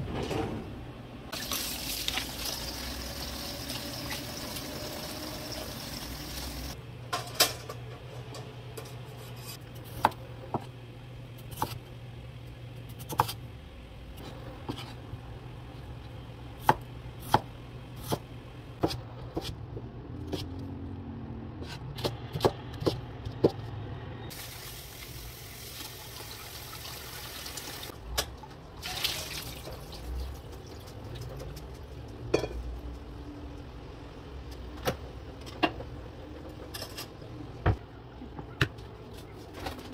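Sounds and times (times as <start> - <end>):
tap water running: 1.3 - 6.8, 24.4 - 27.9, 28.8 - 30.9.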